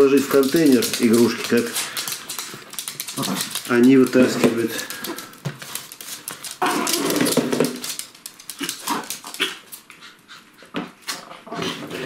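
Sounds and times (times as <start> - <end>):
dogs growling: 1.8 - 3.9, 6.6 - 7.9, 8.5 - 12.0.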